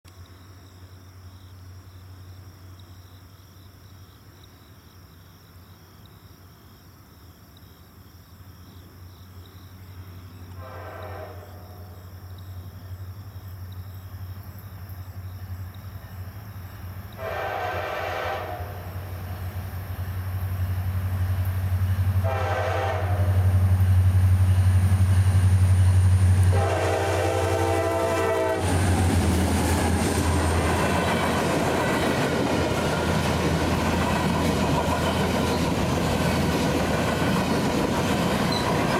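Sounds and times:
train horn blasts: 10.6 - 12.0, 17.2 - 19.0, 22.2 - 23.7, 26.4 - 29.0
diesel locomotive engine drone: 10.7 - 38.9
train wheels clattering on rails: 28.0 - 38.9.

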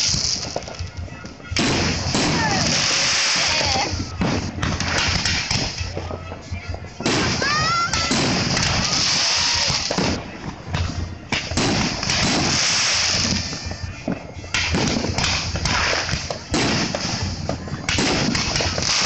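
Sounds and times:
fireworks bangs and crackling: 0.0 - 19.0
fireworks hiss: 0.0 - 19.0.

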